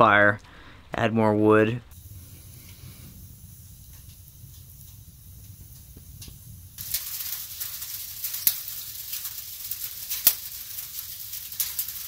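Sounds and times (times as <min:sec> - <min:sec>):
fire pops: 0:01.9 - 0:12.0
wood fire crackling: 0:01.9 - 0:12.0
sleet falling on shed: 0:06.8 - 0:12.0.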